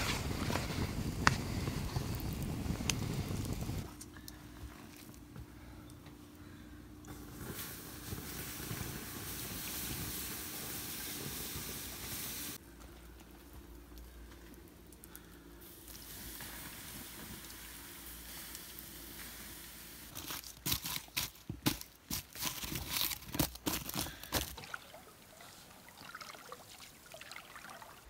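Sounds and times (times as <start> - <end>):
boots crunching embers: 0.0 - 5.5, 20.1 - 24.8
doused campfire hissing: 0.0 - 24.6.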